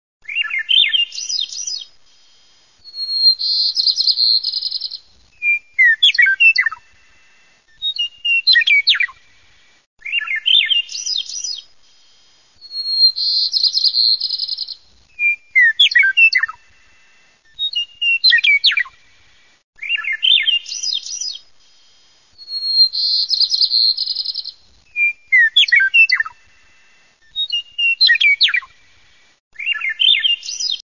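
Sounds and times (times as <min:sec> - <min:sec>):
bird song with trill: 0:00.2 - 0:02.0, 0:02.9 - 0:07.0, 0:07.7 - 0:09.3, 0:10.0 - 0:11.7, 0:12.6 - 0:16.8, 0:17.5 - 0:19.0, 0:19.8 - 0:21.5, 0:22.4 - 0:28.8, 0:29.6 - 0:30.8.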